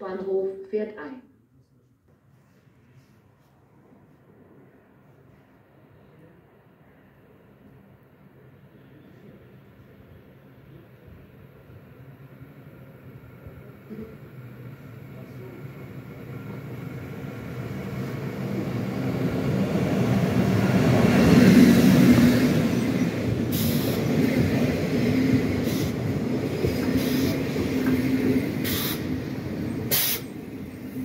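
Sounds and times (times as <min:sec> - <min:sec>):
train wheels rumbling: 0:12.8 - 0:31.0
brake air hisses: 0:23.5 - 0:24.1, 0:27.0 - 0:27.4, 0:28.6 - 0:29.1, 0:29.9 - 0:30.4.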